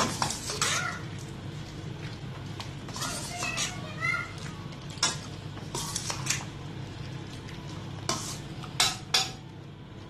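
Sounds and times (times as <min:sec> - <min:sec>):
spatula scraping pan side: 0:00.0 - 0:00.9, 0:02.9 - 0:03.9, 0:05.0 - 0:06.4, 0:08.1 - 0:09.3
spatula stirring in a metal pan: 0:00.0 - 0:01.4, 0:02.2 - 0:06.5, 0:08.0 - 0:09.4.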